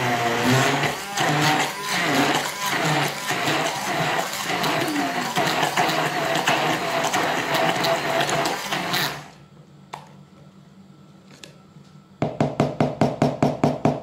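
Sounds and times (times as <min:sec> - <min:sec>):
electric blender running: 0:00.0 - 0:09.4.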